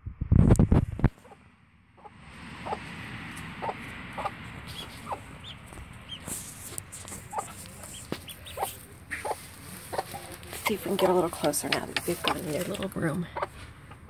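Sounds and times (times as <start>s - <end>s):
ducklings peeping: 1.2s - 1.4s, 2.0s - 11.3s
hen clucking softly: 1.2s - 1.4s, 2.0s - 2.9s, 3.6s - 6.3s, 7.1s - 11.3s, 13.2s - 13.6s.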